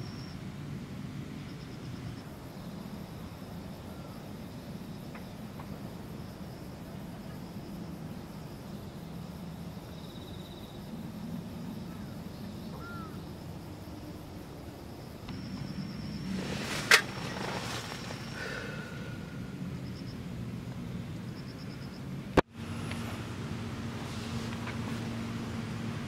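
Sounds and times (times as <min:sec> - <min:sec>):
insect trill: 0:00.0 - 0:23.9
high insect buzz: 0:02.2 - 0:20.3.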